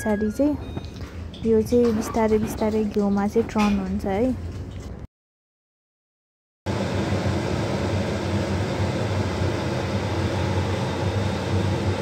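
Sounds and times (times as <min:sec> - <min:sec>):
gas burner rumble: 0:06.7 - 0:12.0.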